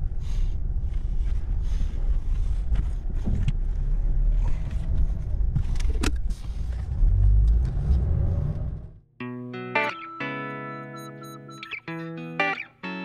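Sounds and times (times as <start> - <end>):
engine and road rumble: 0.0 - 9.2.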